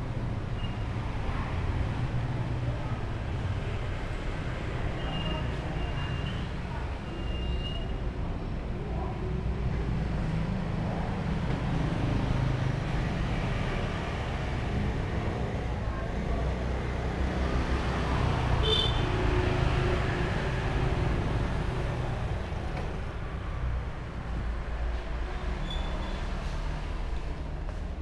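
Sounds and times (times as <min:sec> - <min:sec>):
motorbikes and cars passing: 0:09.2 - 0:28.0.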